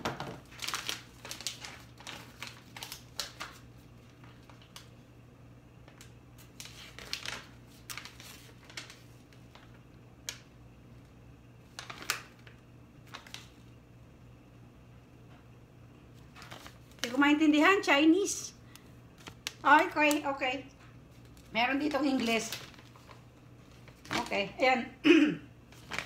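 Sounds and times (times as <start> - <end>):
paper leaflet crackling and rustling: 0.3 - 5.1, 5.8 - 13.7, 16.1 - 17.3, 18.7 - 24.6, 25.7 - 26.0.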